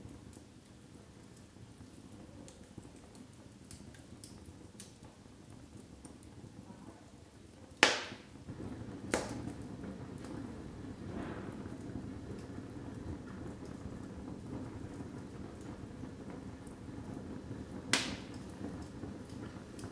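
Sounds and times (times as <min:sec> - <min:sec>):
logs crackling in fireplace: 0:00.0 - 0:19.9
sharp fire pops: 0:07.8 - 0:19.9
fire low rushing: 0:08.5 - 0:18.8.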